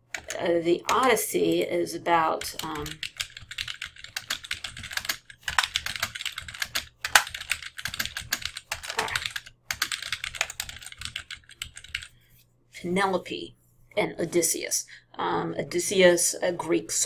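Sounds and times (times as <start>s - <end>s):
keyboard typing: 0.0s - 1.2s, 2.3s - 12.1s.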